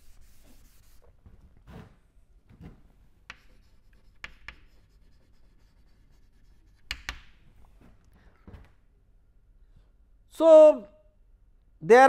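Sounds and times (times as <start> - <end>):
chalk tapping on a blackboard: 0.0 - 1.0, 3.3 - 7.4
chalk scratching on a blackboard: 0.0 - 1.1, 3.3 - 7.3.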